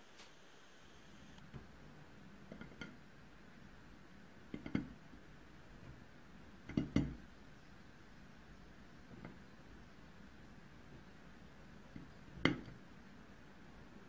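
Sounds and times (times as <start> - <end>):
pastries tapping on ceramic plate: 4.5 - 5.0, 6.7 - 7.2, 12.0 - 12.8.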